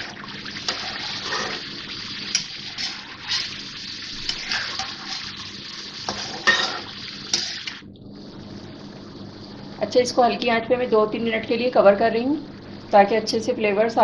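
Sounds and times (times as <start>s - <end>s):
chicken sizzling in oil: 0.0s - 7.8s
metal spatula scraping a pan: 0.7s - 1.7s, 2.3s - 5.4s, 6.0s - 7.7s.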